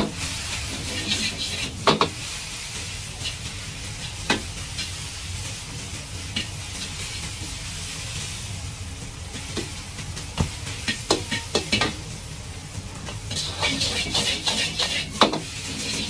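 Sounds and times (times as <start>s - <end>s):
rice sizzling in a wok: 0.0s - 16.0s
metal ladle scraping a wok: 0.3s - 2.1s, 13.3s - 16.0s.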